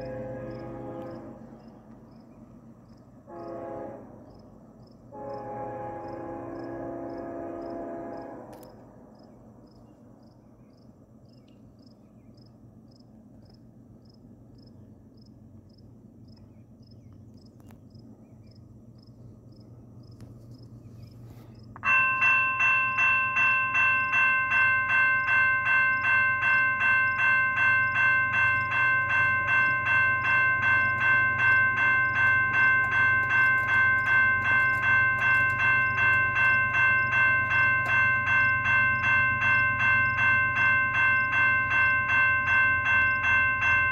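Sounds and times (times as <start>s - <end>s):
railroad crossing bell ringing: 0.0s - 1.8s, 21.7s - 43.9s
freight train low rumble: 0.0s - 43.9s.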